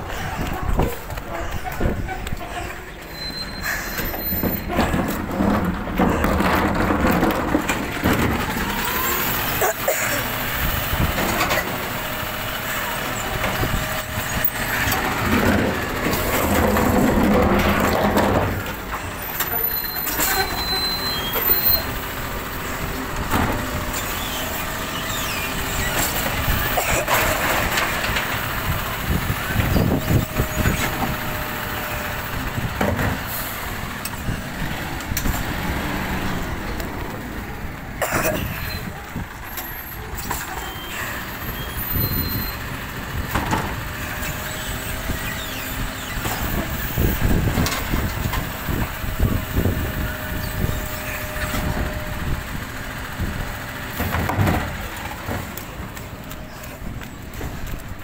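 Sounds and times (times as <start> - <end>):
garbage truck running: 0.0 - 58.0
hydraulic arm lifting bin: 0.0 - 58.0.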